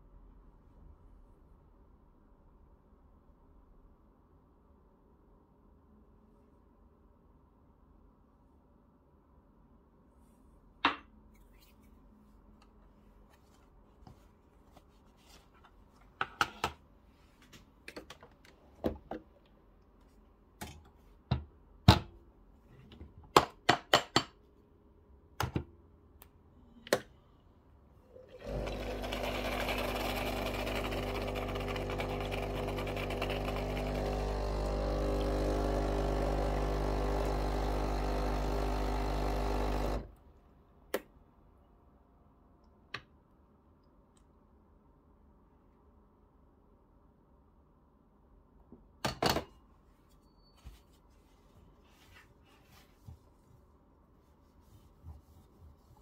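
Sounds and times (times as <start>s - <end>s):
espresso machine pump humming: 28.3s - 40.1s.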